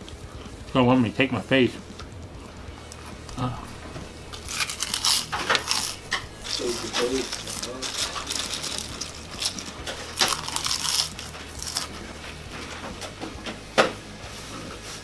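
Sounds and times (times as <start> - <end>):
potato chips crunching: 2.9 - 12.0.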